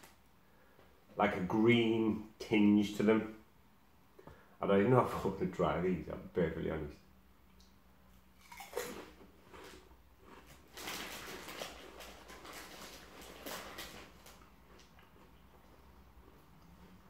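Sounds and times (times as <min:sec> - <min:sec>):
crisp being crunched and chewed: 0:08.4 - 0:17.0.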